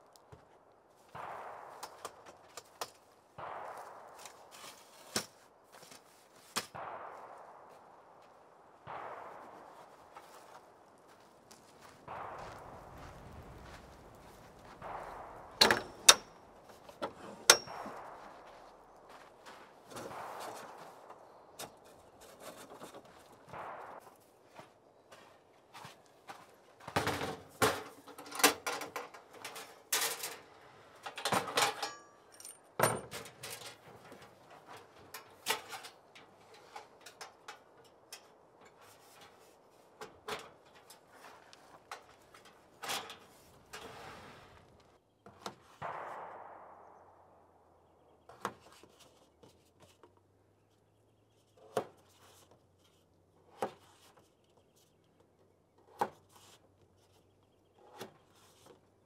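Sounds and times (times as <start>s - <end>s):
camp stove parts clacking and rattling: 15.6s - 23.5s, 26.8s - 44.7s.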